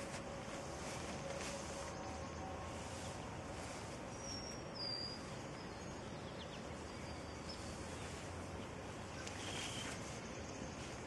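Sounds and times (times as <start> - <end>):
outdoor background noise: 0.0 - 11.0
bird whistled call: 9.3 - 10.0.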